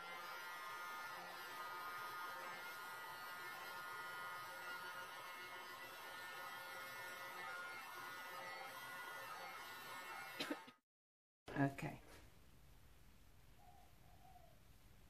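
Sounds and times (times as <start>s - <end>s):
heat gun fan humming: 0.0s - 10.7s.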